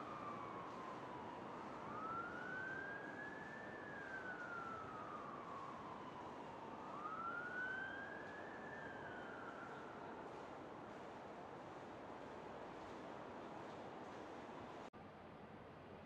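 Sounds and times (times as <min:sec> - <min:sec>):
distant siren wailing: 0:00.0 - 0:10.7
city traffic hum: 0:00.0 - 0:16.0.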